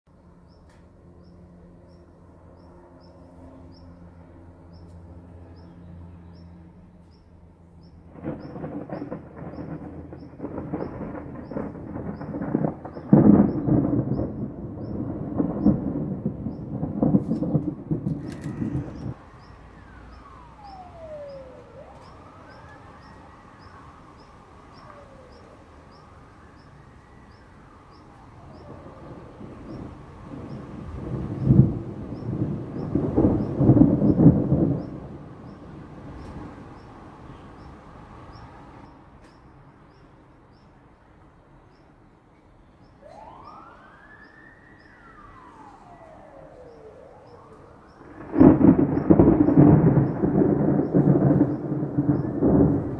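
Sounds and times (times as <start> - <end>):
low storm rumble: 1.2 - 40.6, 43.1 - 52.9
siren wailing: 8.0 - 38.7, 42.8 - 52.9.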